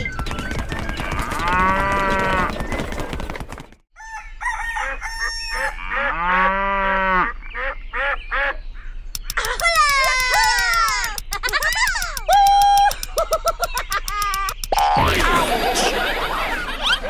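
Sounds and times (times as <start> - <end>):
cow mooing: 1.2 - 2.5, 5.7 - 7.3
chickens clucking: 9.2 - 12.3.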